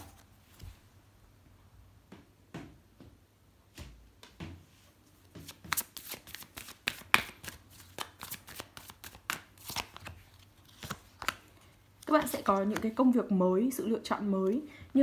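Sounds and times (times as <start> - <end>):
cards being shuffled: 5.3 - 13.0.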